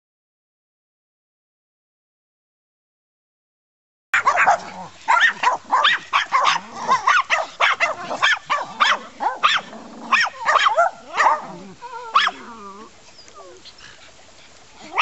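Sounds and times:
small dog barking and yipping: 4.2 - 14.0, 14.8 - 15.0.

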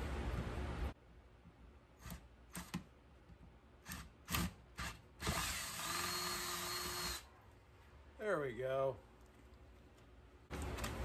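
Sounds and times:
drill boring into plastic pipe: 3.9 - 7.2.

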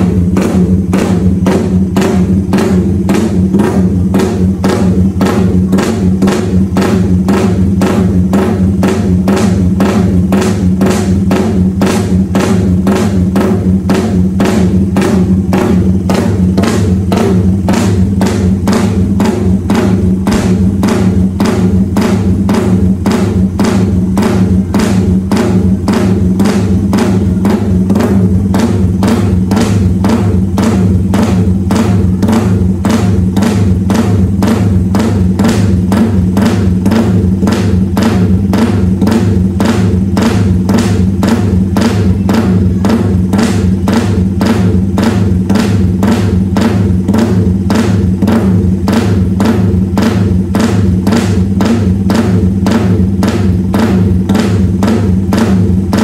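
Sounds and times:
deep bass: 0.0 - 56.0
fast drum beat: 0.0 - 56.0.

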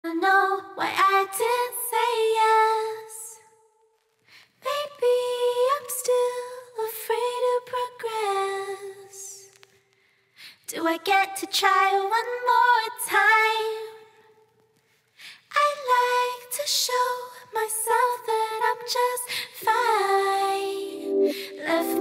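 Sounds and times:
woman singing slow notes: 19.6 - 22.0.

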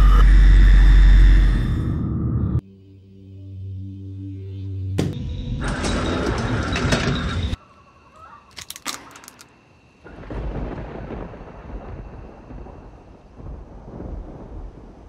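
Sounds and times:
walnut shells cracking on wood: 8.5 - 9.5.

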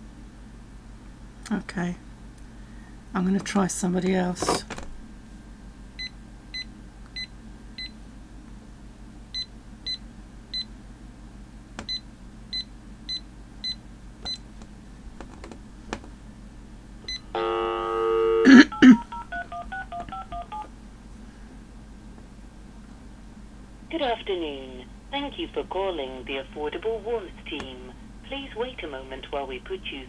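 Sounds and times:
short buzzy tone: 17.3 - 19.0
phone keypad beeps: 18.7 - 20.7
touch-tone dialing tones: 18.7 - 20.7.

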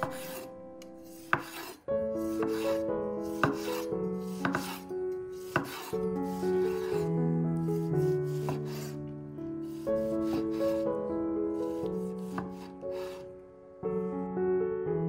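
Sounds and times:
knife slicing tomato: 0.0 - 7.1, 7.8 - 9.0, 9.6 - 10.8, 11.6 - 13.2
soft background music: 0.0 - 15.0
knife knocking wooden board: 1.3 - 1.8, 4.4 - 4.8.

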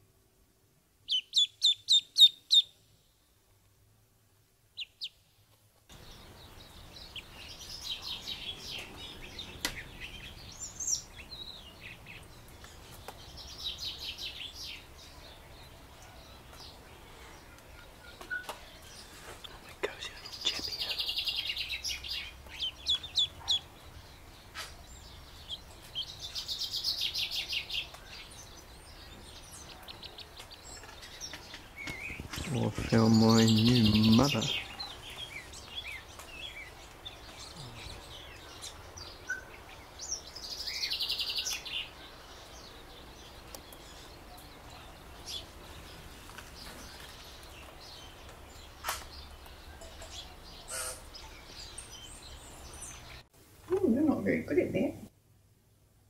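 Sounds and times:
faint background hiss: 0.0 - 56.0
duckling peeping: 1.0 - 2.7, 19.4 - 24.0, 25.4 - 27.9, 31.8 - 36.0, 49.9 - 51.3.

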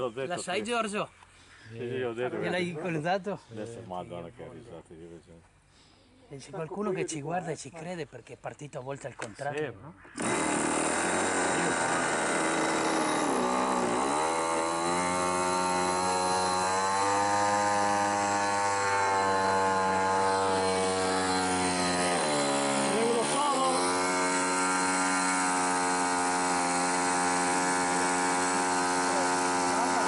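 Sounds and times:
model aircraft engine droning: 10.2 - 30.0.

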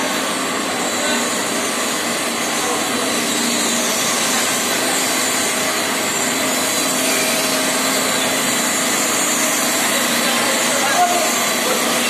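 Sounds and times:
recycling machinery whirring: 0.0 - 12.0.

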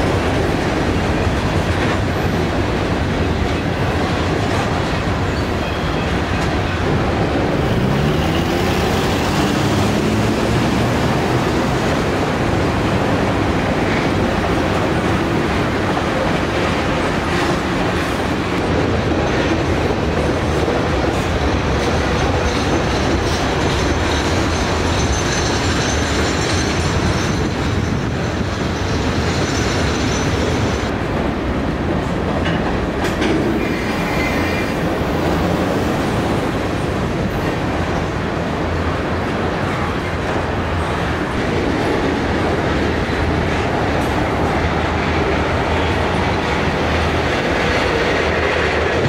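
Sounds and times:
train wheels rumbling on rail: 0.0 - 49.0.

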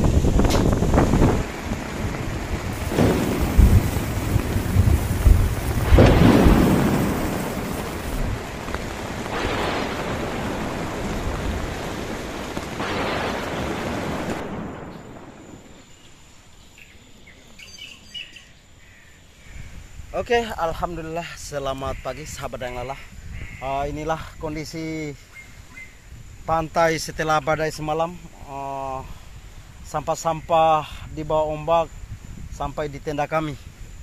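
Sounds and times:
heavy rain on tent fabric: 0.0 - 15.6
thunder: 0.0 - 16.0
wind gusts: 0.0 - 34.0.

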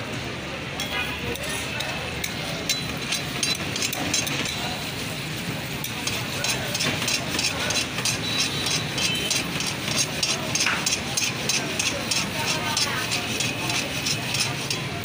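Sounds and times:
metal ladle scraping pan: 5.8 - 15.0.

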